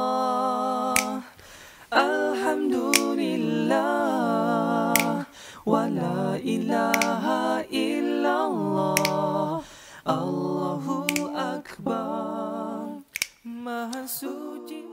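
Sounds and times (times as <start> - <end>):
short sharp clicks: 1.0 - 1.2, 2.9 - 3.2, 5.0 - 5.2, 6.9 - 7.2, 9.0 - 9.2, 11.0 - 11.3, 13.1 - 14.0.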